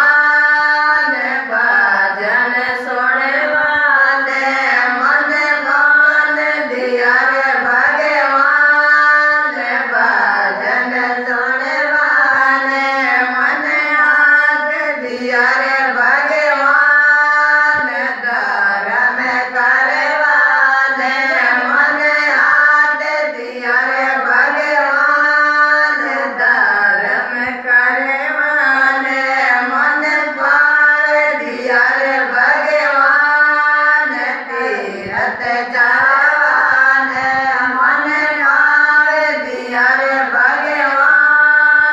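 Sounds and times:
women singing in unison: 0:00.0 - 0:41.9.

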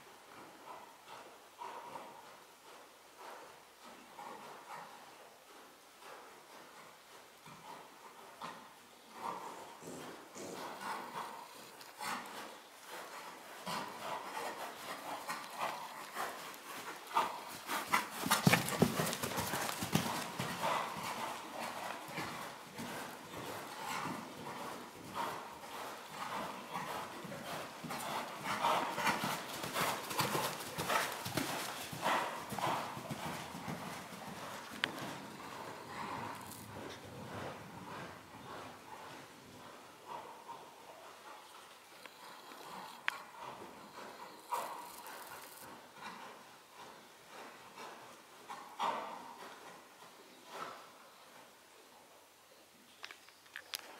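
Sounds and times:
horse hooves on sand: 0:00.3 - 0:51.3.

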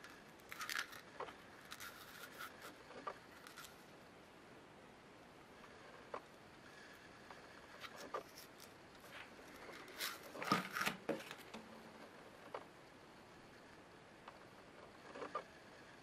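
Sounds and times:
plastic bag crinkling: 0:00.0 - 0:02.8.

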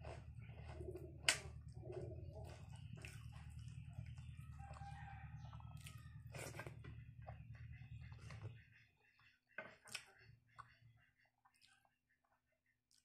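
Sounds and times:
fingers mixing rice on steel plate: 0:00.0 - 0:05.0
chewing: 0:00.0 - 0:08.6, 0:09.7 - 0:10.8
steady low hum: 0:00.0 - 0:09.2
rooster crowing: 0:04.4 - 0:06.3.

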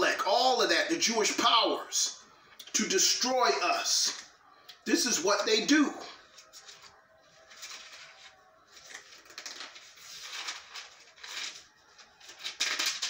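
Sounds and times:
paper pages rustling: 0:06.3 - 0:13.0.

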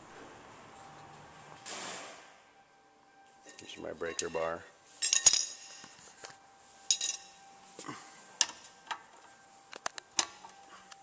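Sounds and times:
steel hand tools clinking: 0:03.5 - 0:04.4, 0:06.9 - 0:07.3.

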